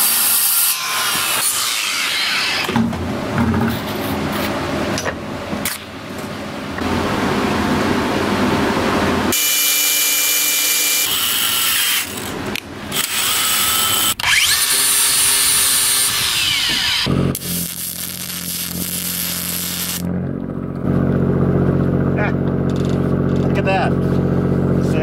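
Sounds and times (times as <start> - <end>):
electric drill whining: 9.3 - 20.1
angle grinder running: 9.3 - 24.8.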